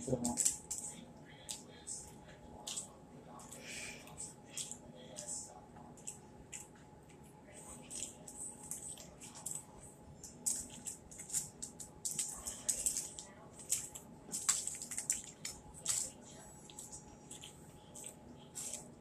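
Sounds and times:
chewing with wet mouth clicks: 0:07.9 - 0:18.9.

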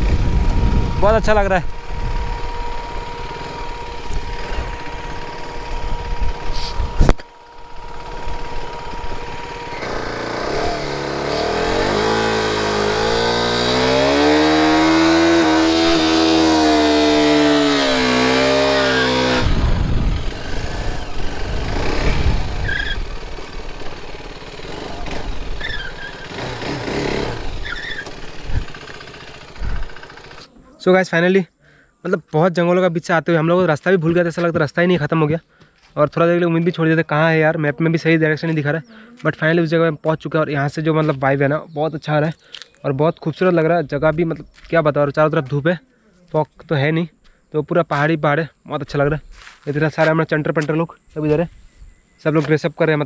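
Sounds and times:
motorcycle engine revving: 0:00.0 - 0:30.6
motorcycle engine running: 0:00.0 - 0:30.6.

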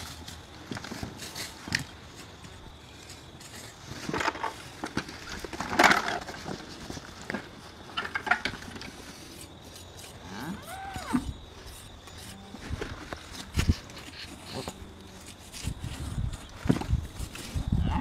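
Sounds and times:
animal call: 0:10.2 - 0:11.4
knocks and rustles: 0:11.2 - 0:17.8.

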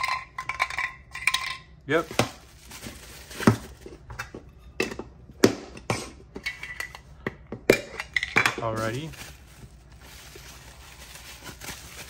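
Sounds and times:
soft plastic rustle: 0:01.9 - 0:04.0, 0:08.6 - 0:12.0.

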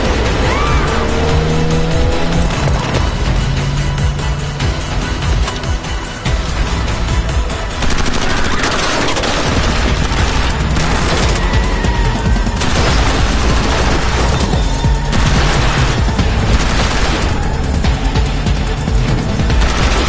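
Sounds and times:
dramatic music: 0:00.0 - 0:20.0
rapid gunfire: 0:07.7 - 0:11.6, 0:12.5 - 0:17.7, 0:19.4 - 0:20.0.

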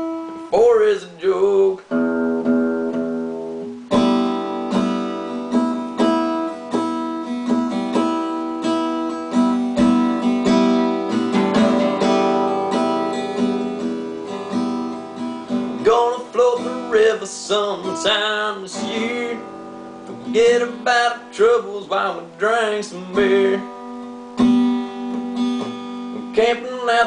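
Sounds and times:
acoustic guitar strumming and picking: 0:00.0 - 0:27.0.

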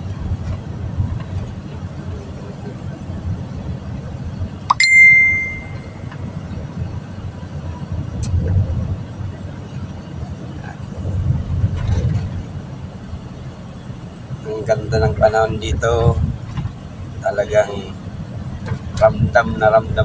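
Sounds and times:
vehicle road and engine rumble: 0:00.0 - 0:20.0
bell-like ding: 0:04.7 - 0:06.1.

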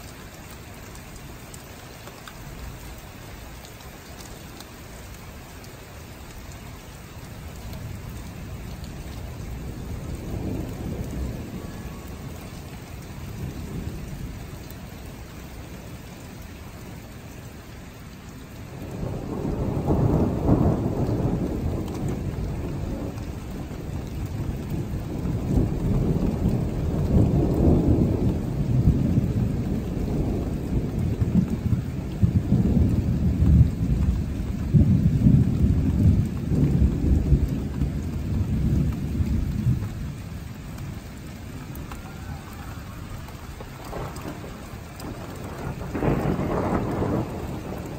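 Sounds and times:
rain hissing: 0:00.0 - 0:47.9
rolling thunder: 0:07.7 - 0:14.9, 0:18.7 - 0:47.9.

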